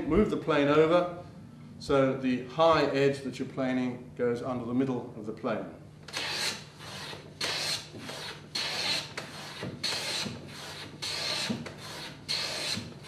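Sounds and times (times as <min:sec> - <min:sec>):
hand plane scraping wood: 0:06.1 - 0:13.0.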